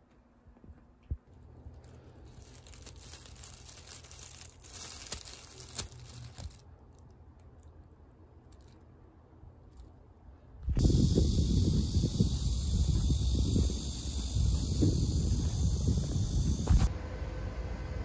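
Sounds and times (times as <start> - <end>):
packing paper crinkling: 1.4 - 7.6.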